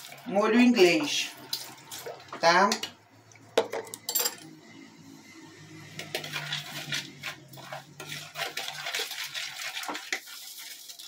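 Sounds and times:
spoon clinking and scraping bowl: 3.6 - 4.6, 6.0 - 10.4.

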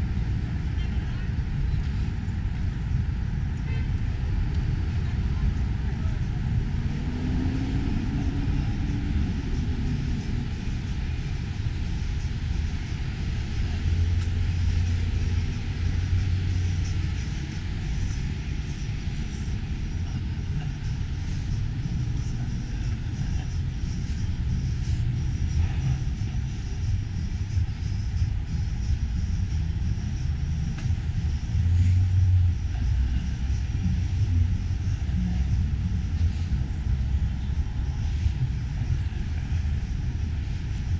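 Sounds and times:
city street rumble: 0.0 - 40.9.

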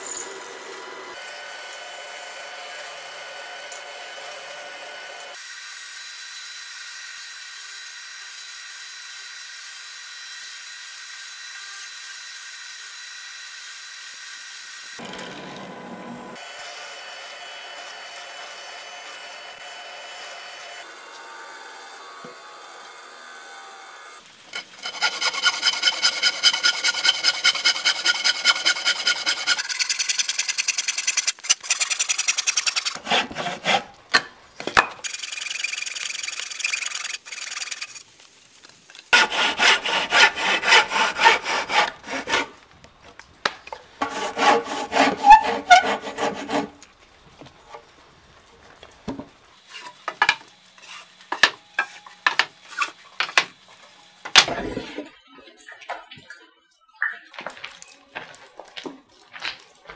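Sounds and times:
hand tool sawing wood: 21.0 - 34.2, 39.1 - 42.6, 44.0 - 46.8.

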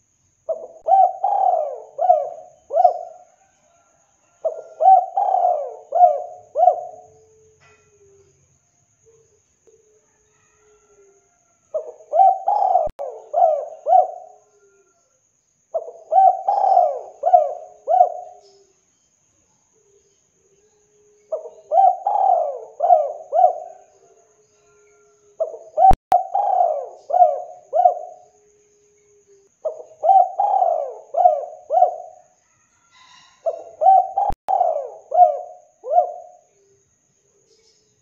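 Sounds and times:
dove cooing: 0.5 - 8.3, 11.7 - 15.0, 15.7 - 18.7, 21.0 - 32.3, 32.9 - 36.7.

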